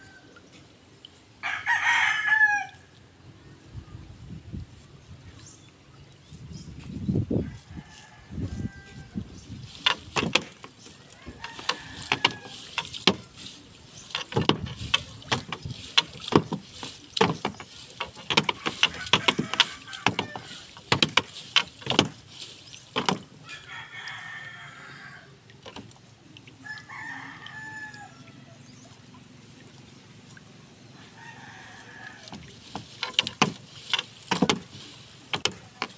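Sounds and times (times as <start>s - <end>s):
rooster crowing: 1.4s - 2.8s, 7.4s - 9.2s, 11.1s - 12.8s, 18.7s - 20.8s, 23.4s - 25.4s, 26.6s - 28.6s, 31.0s - 32.4s
fishing net knocking against boat: 9.7s - 23.4s, 32.2s - 35.9s.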